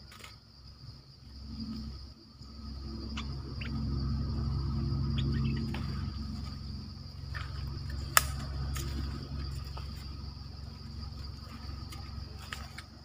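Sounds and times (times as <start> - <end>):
high-pitched insect drone: 0.0 - 13.0
low rumble: 0.8 - 13.0
high bird chirps: 5.0 - 6.2.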